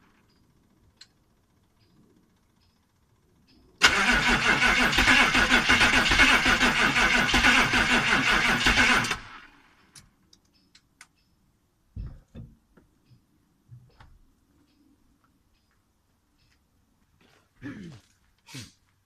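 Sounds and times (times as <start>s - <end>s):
diesel engine cranking: 3.8s - 9.8s
faint clicks: 9.9s - 11.3s.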